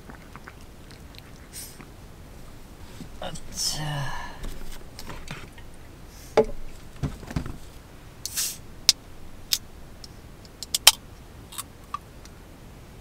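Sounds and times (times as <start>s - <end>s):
short hiss: 1.5s - 1.8s, 8.2s - 8.7s.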